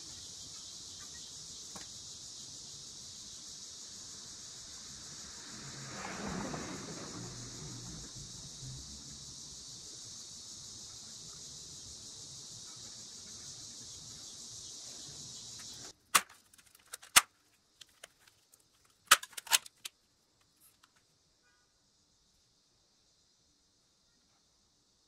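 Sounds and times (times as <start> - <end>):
steady hiss: 0.0 - 25.0
plastic clicks and crackles: 15.9 - 21.0.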